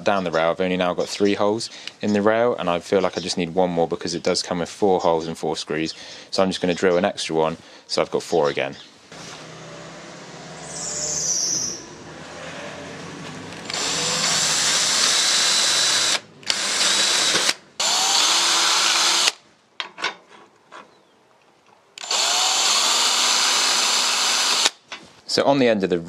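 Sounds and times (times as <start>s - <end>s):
power drill boring through metal: 13.5s - 19.4s, 22.0s - 24.8s.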